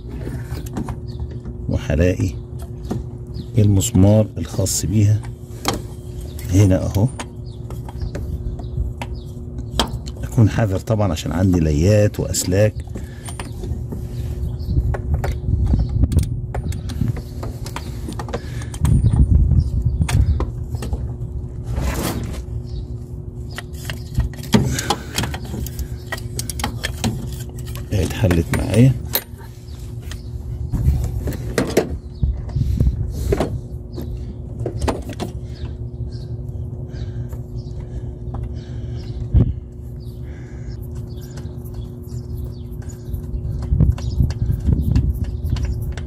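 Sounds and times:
rumbling handling noise: 0.0 - 46.0
steady low hum: 0.0 - 46.0
wrench clicking and scraping on bolt: 23.5 - 29.5.

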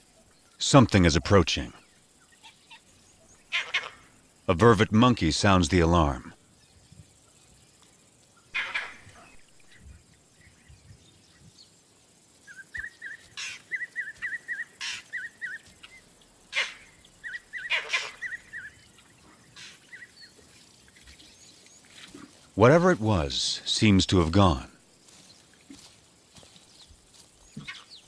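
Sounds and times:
monkey alarm calls: 3.5 - 4.1, 8.4 - 9.8, 12.5 - 21.0.

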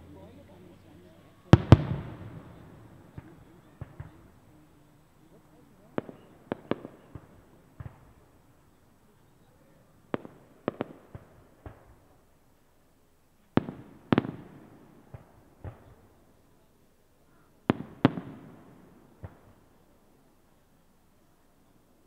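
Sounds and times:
fireworks bangs with echo: 1.4 - 8.7, 10.1 - 12.2, 13.5 - 16.2, 17.6 - 19.7.

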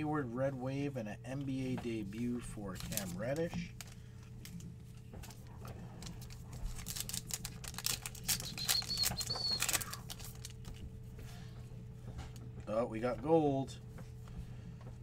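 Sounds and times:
foil pack crinkling: 2.1 - 10.8.

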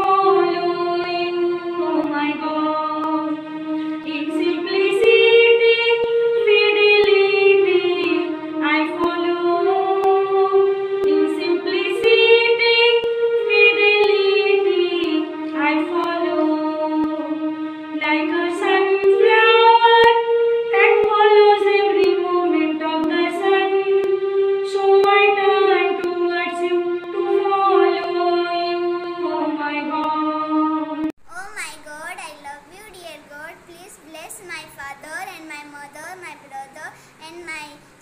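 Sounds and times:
woman singing: 4.0 - 10.4.

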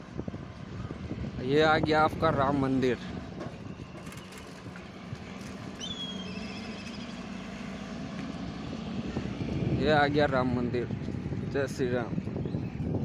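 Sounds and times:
road noise: 0.0 - 13.0
high wavering whistling call: 5.8 - 7.1.

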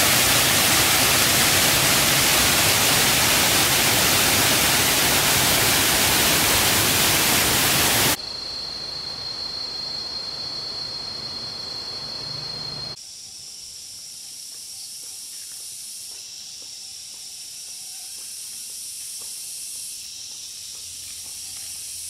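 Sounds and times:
rushing noise with high whine: 0.0 - 8.2
insects hissing: 0.0 - 22.0.

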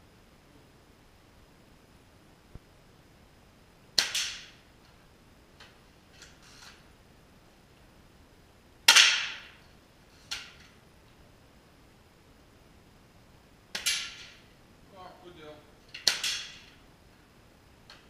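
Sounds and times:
air rifle shots echoing: 8.9 - 9.6.

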